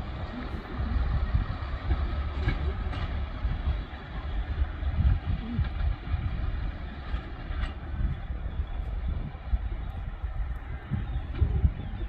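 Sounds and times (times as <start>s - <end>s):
diesel train engines rumbling: 0.0s - 12.0s.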